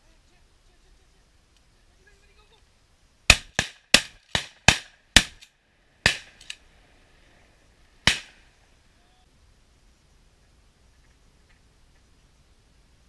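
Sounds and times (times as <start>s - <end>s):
shotgun blasts: 3.3s - 6.6s, 8.0s - 8.5s.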